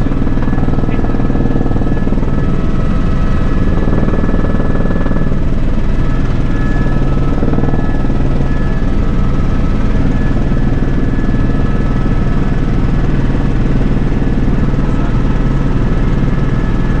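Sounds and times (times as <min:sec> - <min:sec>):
helicopter engine and rotor drone: 0:00.0 - 0:17.0
high-pitched whining tones: 0:00.0 - 0:17.0.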